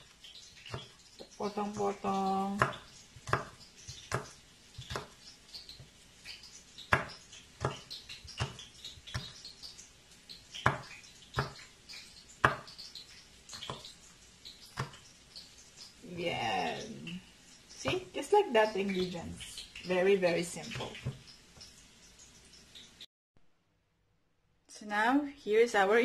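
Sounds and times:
knife tapping on cutting board: 0:02.6 - 0:05.2, 0:06.9 - 0:09.4, 0:10.6 - 0:11.6, 0:12.4 - 0:12.8, 0:14.8 - 0:15.0.

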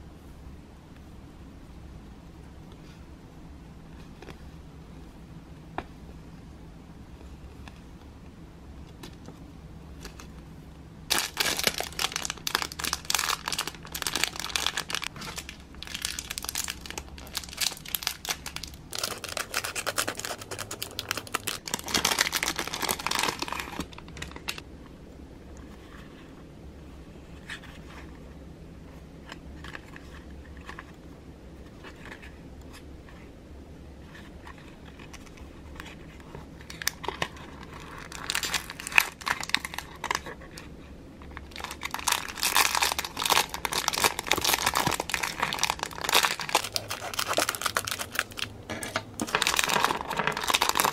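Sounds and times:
plastic packaging crinkling and tearing: 0:11.1 - 0:24.6, 0:34.5 - 0:40.6, 0:41.3 - 0:50.9.

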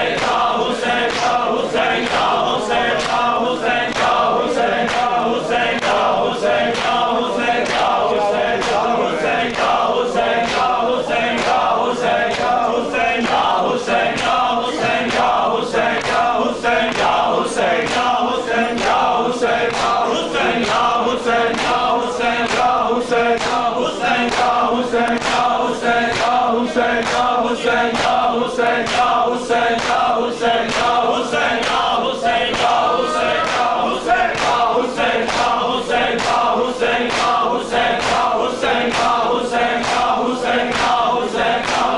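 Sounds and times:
men chanting a lament: 0:00.0 - 0:41.9
hands slapping chests: 0:06.7 - 0:07.0, 0:39.8 - 0:41.9.

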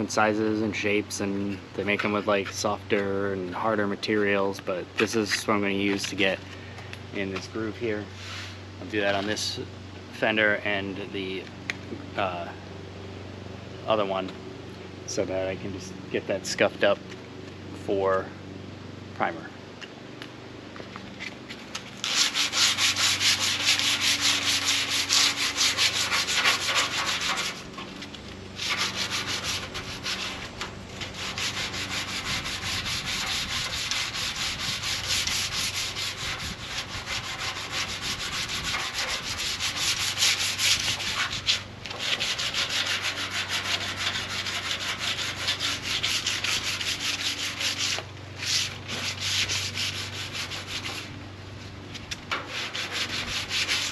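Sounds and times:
hand sanding with sandpaper: 0:22.0 - 0:27.8, 0:28.6 - 0:51.1, 0:52.3 - 0:53.9.

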